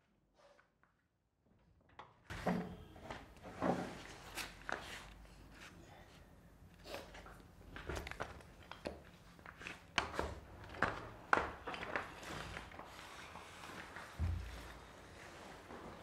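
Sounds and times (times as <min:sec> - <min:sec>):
footsteps: 0:12.1 - 0:16.0.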